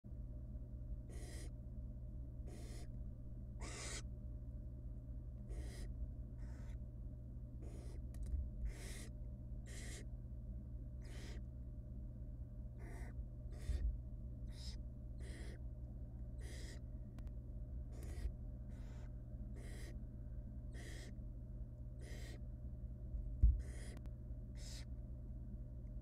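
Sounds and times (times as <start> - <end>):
steady low hum: 0.1 - 26.0
owl chicks hissing calls: 1.1 - 1.6, 2.4 - 3.0, 3.6 - 4.1, 5.5 - 6.8, 7.6 - 10.1, 11.0 - 11.4, 12.8 - 15.6, 16.4 - 16.9, 17.9 - 20.0, 20.7 - 21.2, 22.0 - 22.4, 23.6 - 24.9.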